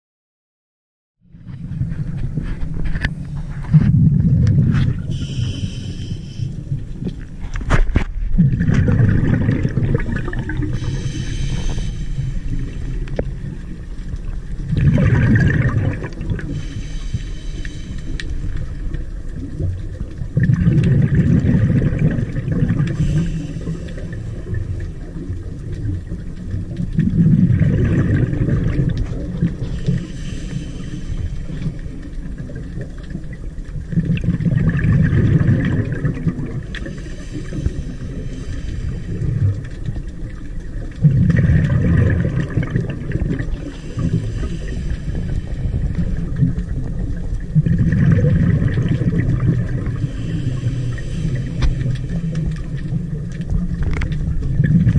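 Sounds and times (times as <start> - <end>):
bubbling exhaust underwater: 1.2 - 54.9
regulator hissing inhale: 5.0 - 7.0, 10.6 - 13.6, 16.4 - 19.1, 22.7 - 25.0, 29.5 - 32.2, 36.6 - 39.9, 43.4 - 46.7, 49.8 - 52.8.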